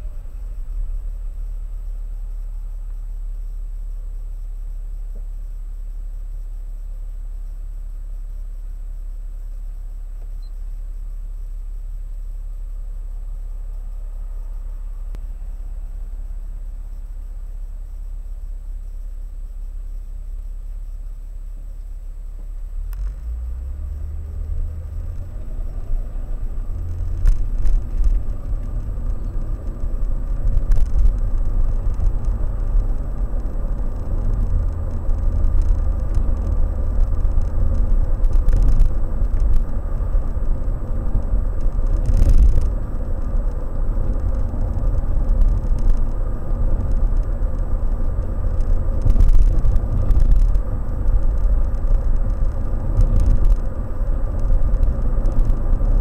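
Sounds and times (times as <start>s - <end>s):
car engine and road rumble: 0.0s - 56.0s
faint steady hum: 0.0s - 56.0s.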